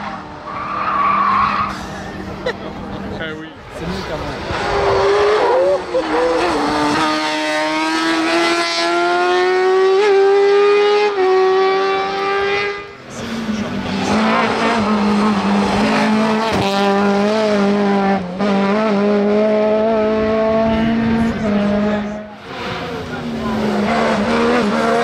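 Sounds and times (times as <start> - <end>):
race car engines revving: 0.0 - 25.0.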